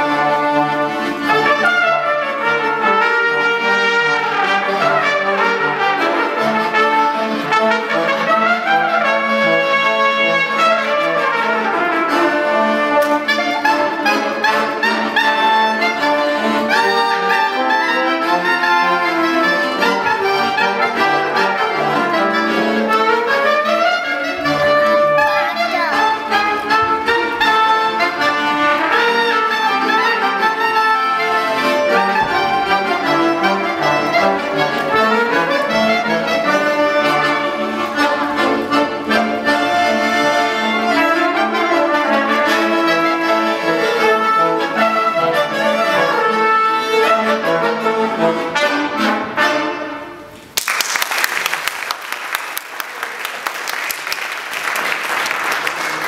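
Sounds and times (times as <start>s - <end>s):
band playing a tune: 0.0s - 50.5s
audience applauding: 50.5s - 56.0s.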